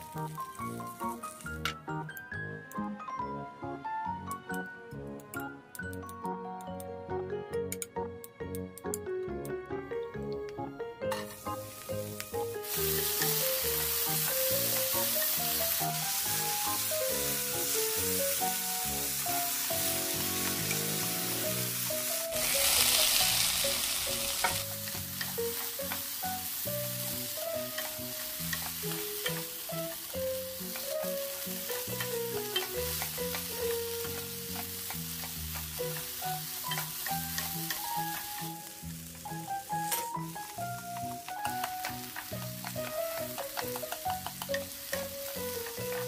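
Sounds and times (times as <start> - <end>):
vegetables sizzling in frying pan: 0.0 - 1.7, 11.1 - 46.0
spoon clicking against pan: 41.4 - 45.1.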